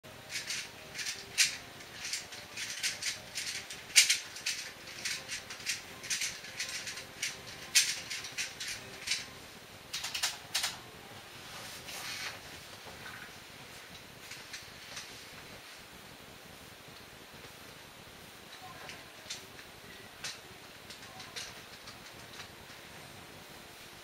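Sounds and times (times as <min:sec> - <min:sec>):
puzzle cube clicking turns: 0:00.3 - 0:09.3.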